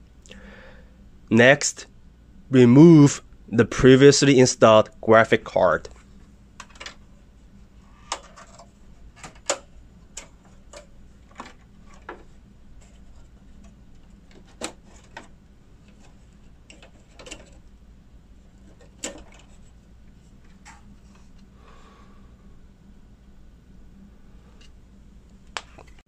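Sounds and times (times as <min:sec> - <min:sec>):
plastic and metal clicks and knocks: 0:16.7 - 0:17.6.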